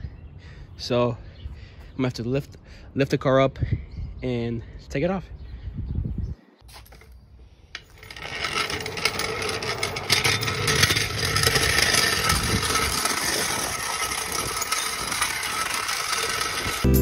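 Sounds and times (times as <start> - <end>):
floor jack wheels scraping on concrete: 7.7 - 17.0.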